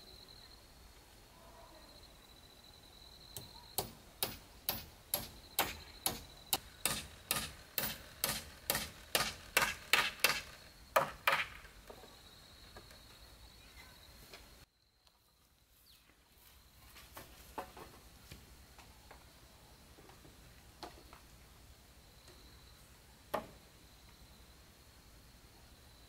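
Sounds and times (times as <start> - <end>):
high insect drone: 0.0 - 14.9
hammer striking a nail into wood: 3.4 - 11.7.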